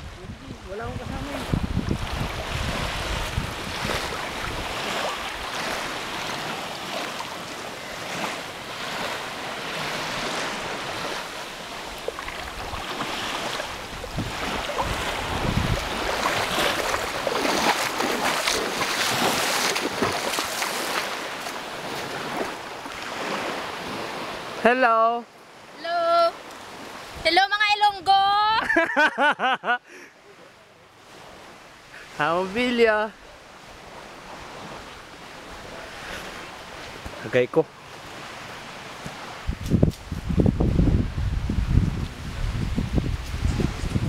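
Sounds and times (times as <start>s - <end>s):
wind buffeting microphone: 0.0s - 6.4s, 8.9s - 21.0s, 39.2s - 44.0s
water lapping at shoreline: 0.0s - 44.0s.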